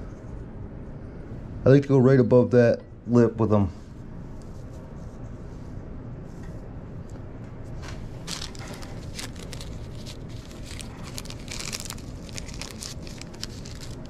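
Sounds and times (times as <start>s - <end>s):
paper wrapper crinkling: 7.9s - 14.0s.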